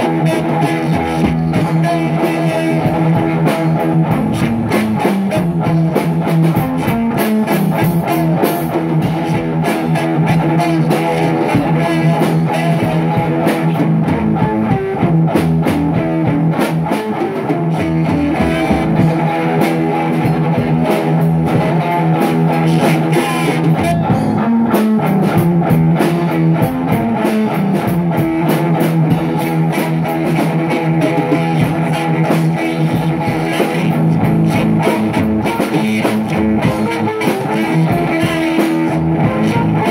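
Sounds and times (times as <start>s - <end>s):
crunchy electric guitar chords: 0.0s - 39.9s
drums: 0.0s - 39.9s.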